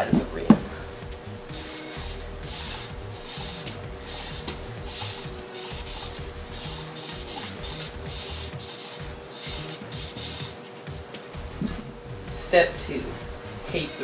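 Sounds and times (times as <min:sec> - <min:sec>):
rag wiping bicycle rim: 0:00.0 - 0:10.7.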